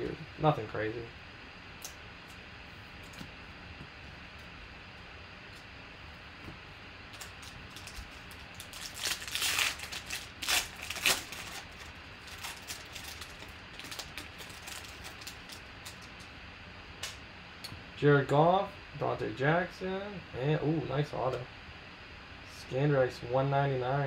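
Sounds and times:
foil wrapper crinkling and tearing: 7.1s - 16.3s
cards sliding out of wrapper: 7.2s - 16.3s.

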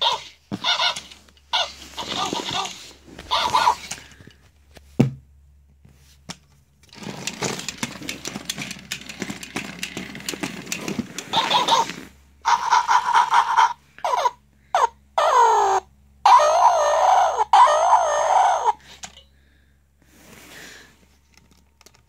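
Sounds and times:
toy motor and gears clicking: 0.0s - 4.2s, 6.9s - 14.3s.

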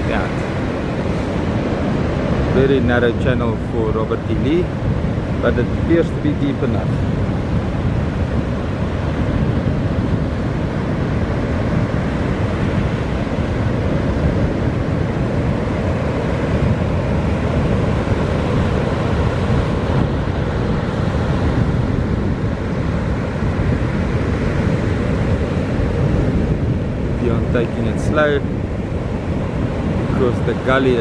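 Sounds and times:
wind buffeting microphone: 0.0s - 31.0s.

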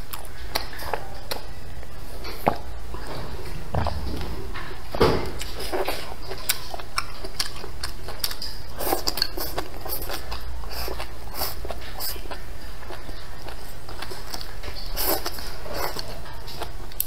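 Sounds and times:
chewing leafy greens: 0.0s - 17.0s.

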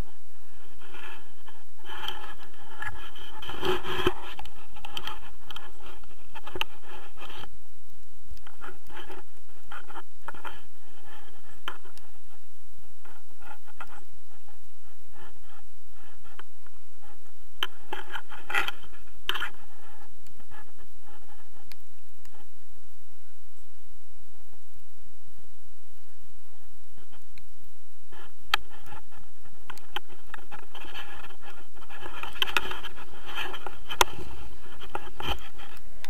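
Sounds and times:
straps scraping against camera: 0.6s - 7.5s, 8.4s - 12.4s, 13.0s - 22.5s, 28.1s - 36.0s.

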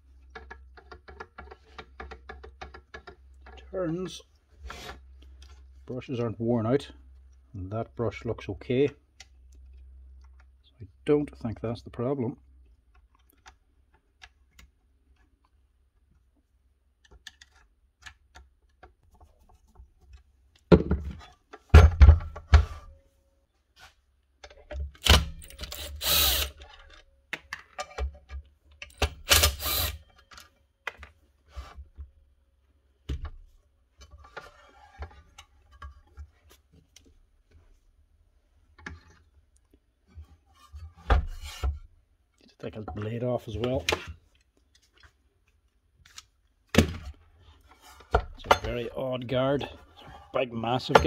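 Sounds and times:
tools knocking and clattering: 48.1s - 48.9s.

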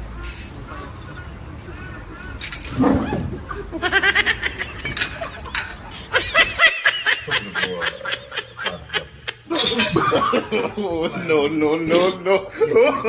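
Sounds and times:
people laughing: 3.0s - 13.0s.

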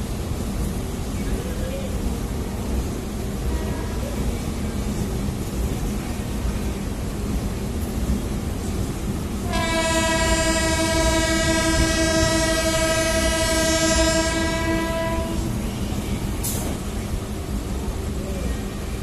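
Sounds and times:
moving train rumble: 0.0s - 19.0s
train horn blast: 9.4s - 15.6s.

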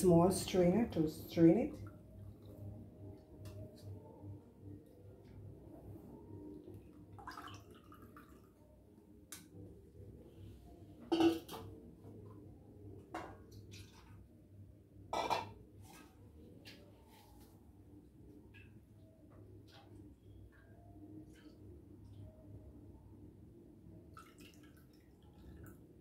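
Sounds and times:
liquid dripping: 6.7s - 8.6s, 24.1s - 25.8s.

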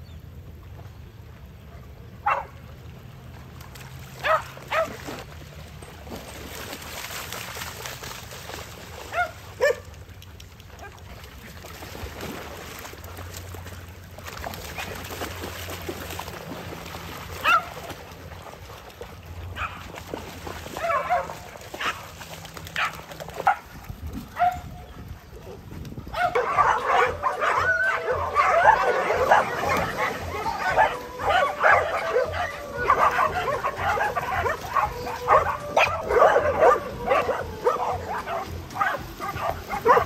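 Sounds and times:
dogs yipping and barking: 4.2s - 5.2s, 9.1s - 9.8s, 17.4s - 17.9s, 20.8s - 22.1s, 22.8s - 23.7s, 24.3s - 40.0s.

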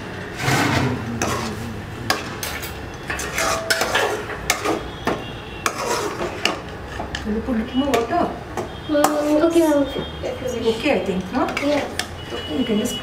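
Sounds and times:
metal utensils clattering on a pot: 0.4s - 8.2s, 11.2s - 13.0s.

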